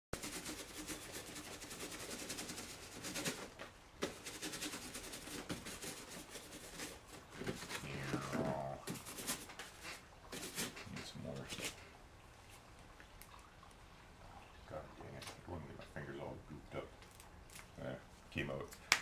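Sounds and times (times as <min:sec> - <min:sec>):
paintbrush scratchy strokes: 0:00.2 - 0:11.8
low steady hum: 0:04.9 - 0:19.0.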